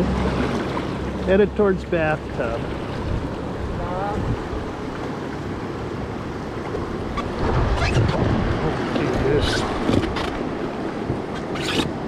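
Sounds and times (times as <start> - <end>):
paddle stroking water: 0.0 - 12.0
river water rushing and lapping: 0.0 - 12.0
wind on microphone: 3.0 - 4.8, 6.7 - 12.0.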